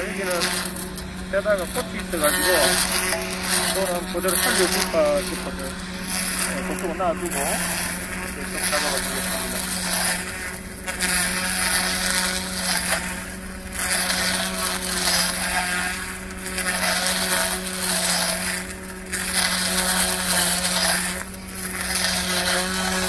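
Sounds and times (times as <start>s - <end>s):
grass trimmer cutting weeds: 0.0s - 23.0s.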